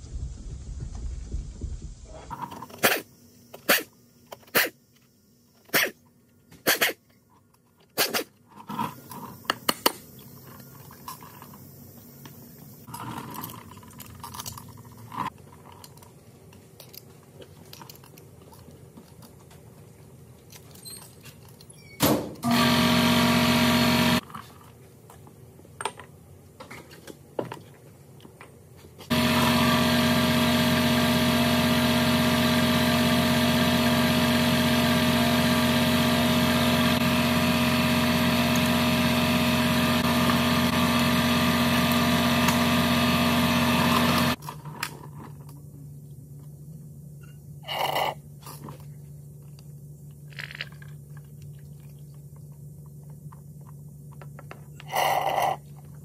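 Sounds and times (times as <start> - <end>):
loud machine humming: 22.4 - 24.2, 29.1 - 44.4.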